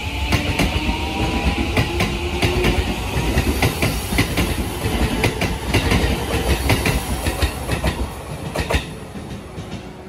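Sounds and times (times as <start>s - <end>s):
train low rumble: 0.0s - 10.0s
train wheels clacking over rail joints: 0.3s - 9.9s.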